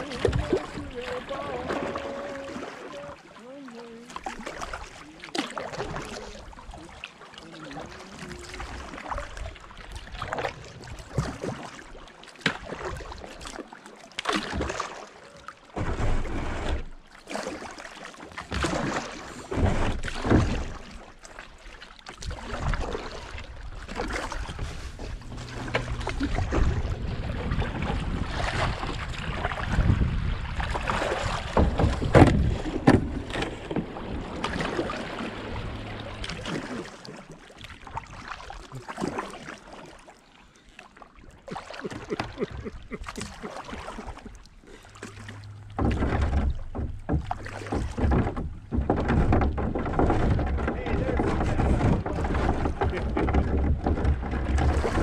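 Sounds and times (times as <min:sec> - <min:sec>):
paddle stroke splashes: 0:00.0 - 0:55.0
water splashing and rushing: 0:00.0 - 0:55.0
wind buffeting microphone: 0:24.5 - 0:33.2.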